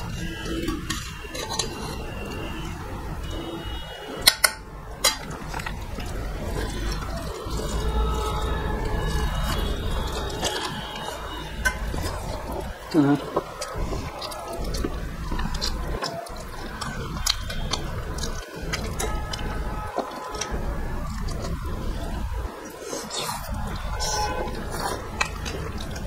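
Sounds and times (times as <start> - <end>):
fingers mixing food on plates: 0.0 - 26.0
wet chewing and mouth smacking: 0.0 - 26.0.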